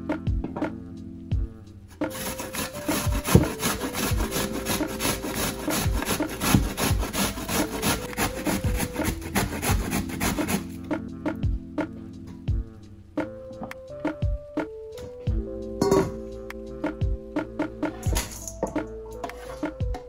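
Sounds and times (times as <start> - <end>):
cabbage rasping on a metal grater: 2.1 - 10.7.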